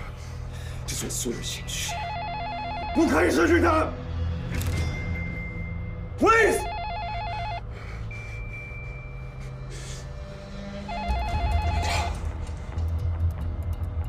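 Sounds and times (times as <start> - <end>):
telephone warbling ring: 1.9 - 3.2, 6.5 - 7.6, 10.9 - 12.1.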